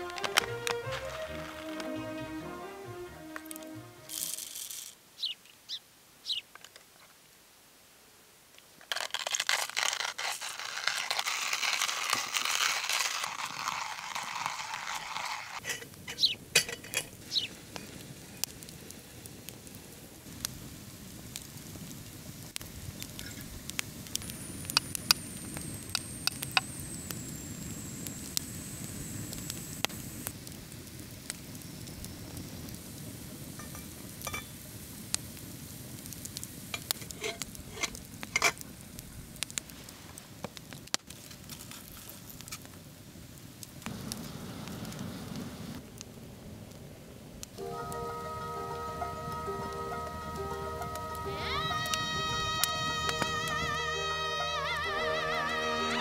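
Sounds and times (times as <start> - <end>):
coffee grinder crunching beans: 3.6 - 5.0, 8.9 - 17.1, 24.2 - 30.3, 36.7 - 38.6
metallic clicks of moka pot: 36.8 - 38.6.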